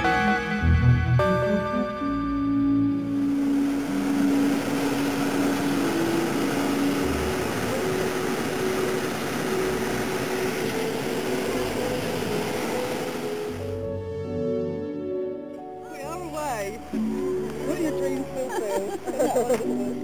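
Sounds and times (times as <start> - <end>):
propane burner blast: 2.8 - 13.9.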